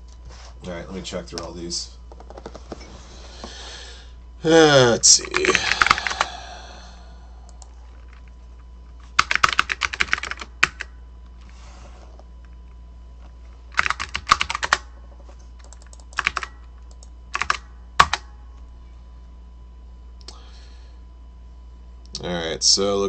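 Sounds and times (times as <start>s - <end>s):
keyboard typing: 5.2s - 6.3s, 9.2s - 10.9s, 13.8s - 14.9s, 15.6s - 18.3s.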